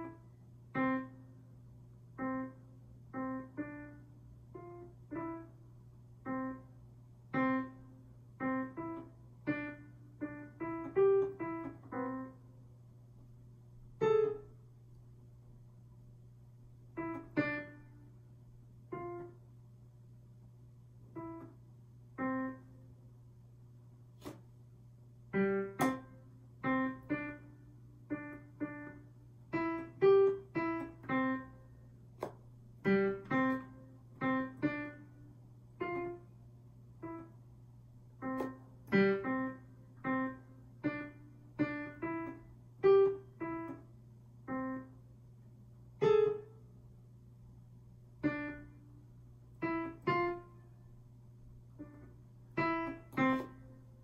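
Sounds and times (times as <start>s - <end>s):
digital piano notes: 0.0s - 1.3s, 6.2s - 12.5s, 14.0s - 14.7s, 25.3s - 31.6s, 32.2s - 35.2s, 35.8s - 36.3s, 38.2s - 45.0s, 51.7s - 54.0s
faint low hum: 0.0s - 54.0s.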